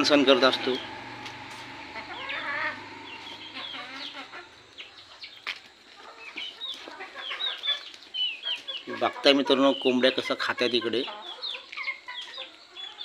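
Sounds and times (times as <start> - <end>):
high bird chirps: 0.0 - 5.5
chickens clucking: 0.0 - 13.0.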